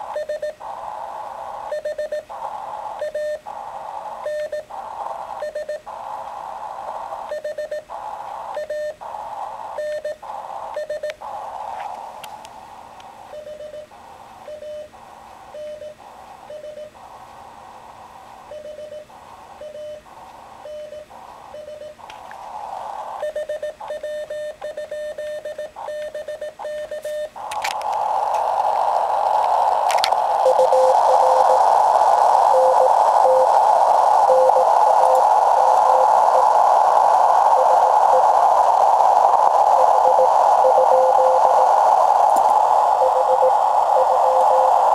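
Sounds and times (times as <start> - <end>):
radio receiver hiss: 0.0 - 44.9
morse code beeps: 0.2 - 0.5, 3.0 - 3.4, 4.3 - 4.7, 9.8 - 10.2, 10.8 - 11.1, 13.4 - 13.9, 15.6 - 16.9, 18.5 - 20.0, 20.7 - 22.0, 23.2 - 27.3, 30.4 - 31.7, 32.5 - 33.6, 34.3 - 36.5, 37.6 - 38.3, 39.7 - 41.7, 42.9 - 44.9.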